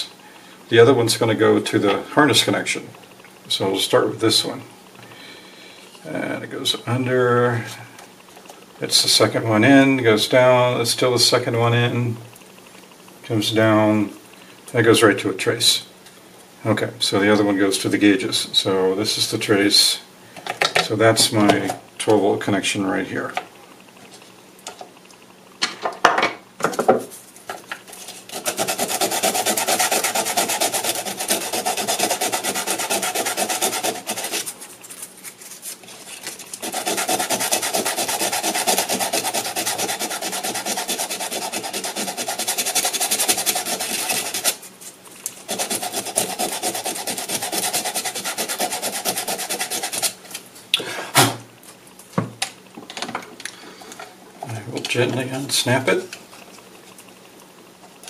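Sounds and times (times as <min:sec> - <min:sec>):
scraping on plastic: 0:27.1 - 0:50.4.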